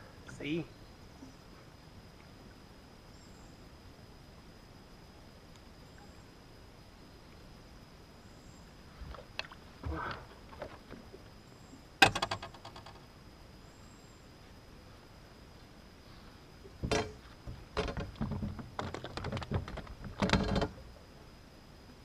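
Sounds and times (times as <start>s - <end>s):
handling knocks and rustles: 16.8s - 20.8s.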